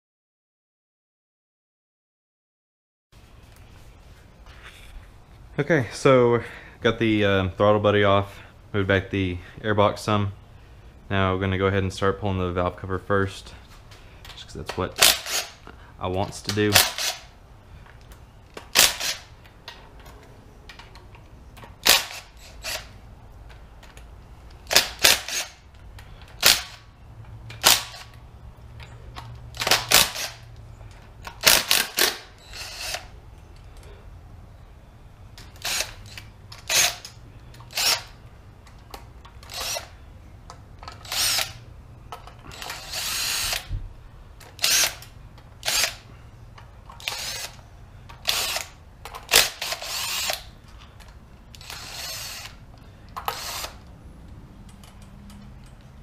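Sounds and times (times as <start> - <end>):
cordless drill spinning: 15.0 - 15.6, 16.7 - 17.3, 18.7 - 19.3, 21.8 - 23.0, 24.7 - 25.6, 29.6 - 30.5, 31.3 - 33.2, 35.4 - 38.2, 39.4 - 40.1, 40.9 - 41.6, 42.4 - 43.7, 44.5 - 46.1, 46.9 - 47.6, 48.2 - 50.6, 51.5 - 53.9.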